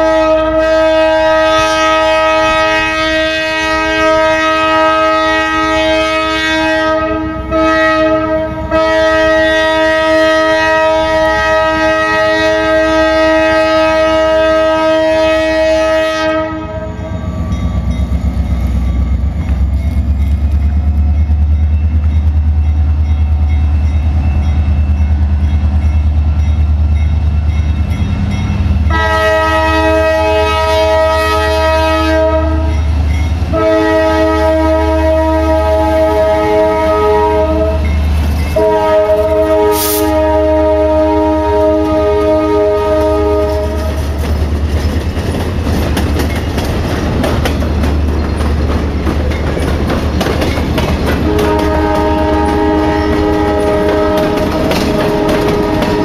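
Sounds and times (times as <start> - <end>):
locomotive air horn: 0.0 - 17.5, 28.8 - 32.9, 33.5 - 38.0, 38.6 - 44.2, 51.2 - 56.0.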